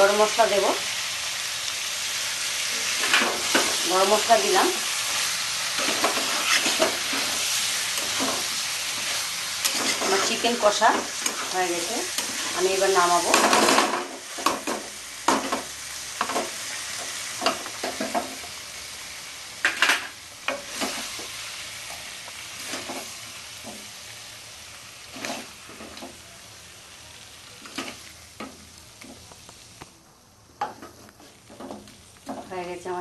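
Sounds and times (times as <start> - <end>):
meat sizzling in oil: 0.0 - 29.9
spoon scraping a pot: 5.8 - 10.4.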